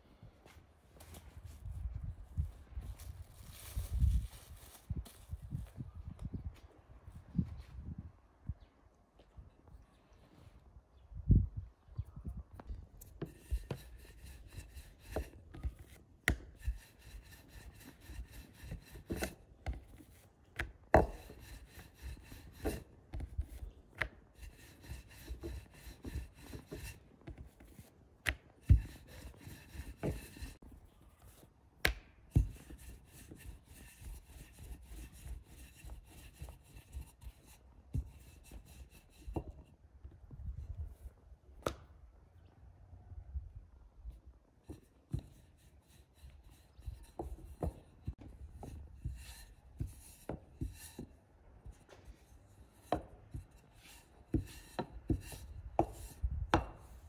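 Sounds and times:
rolling pin rolling dough: 0:13.0 - 0:30.6, 0:32.3 - 0:39.5, 0:44.8 - 0:51.1, 0:52.7 - 0:56.9.

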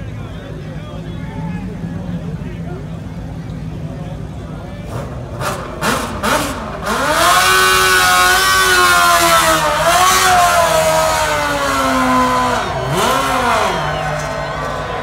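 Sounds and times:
golf cart engine revving: 0:03.3 - 0:15.0.

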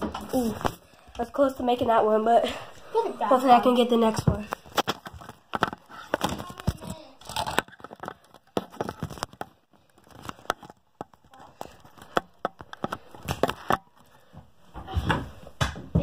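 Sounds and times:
phone handling crackles: 0:04.5 - 0:13.8.

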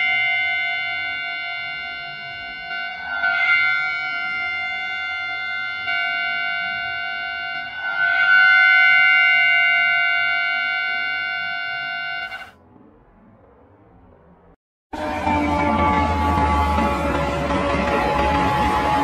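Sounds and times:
train horn blasts: 0:00.0 - 0:12.5, 0:15.0 - 0:19.0.

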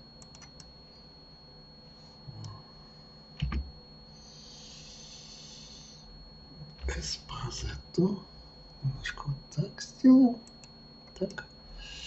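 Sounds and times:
computer keys clicking: 0:00.2 - 0:00.7, 0:03.4 - 0:03.7, 0:10.4 - 0:11.5.

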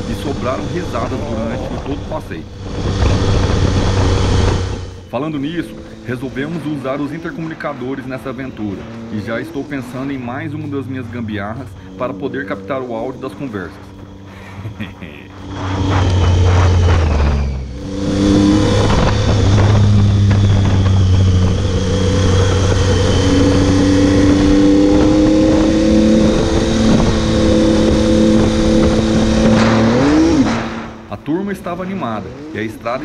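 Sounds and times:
wind rush on microphone: 0:00.0 - 0:08.8, 0:15.4 - 0:31.1
motorcycle engine running under load: 0:00.0 - 0:33.0.

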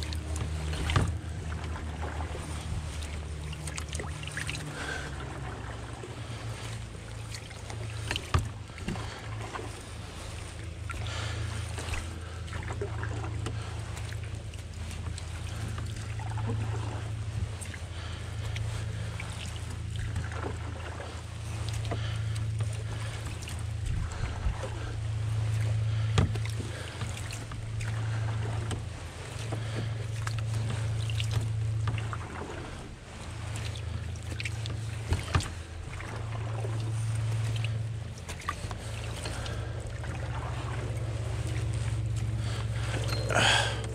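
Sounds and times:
water splashing against canoe hull: 0:00.0 - 0:43.9
wind rumbling on microphone: 0:22.9 - 0:34.0.

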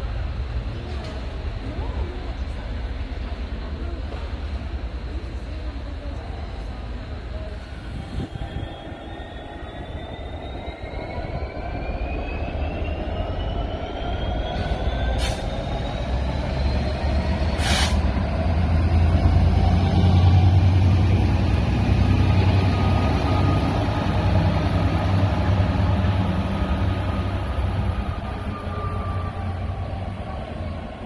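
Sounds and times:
diesel locomotive engine rumble: 0:00.0 - 0:31.0
air hisses: 0:17.6 - 0:18.0.

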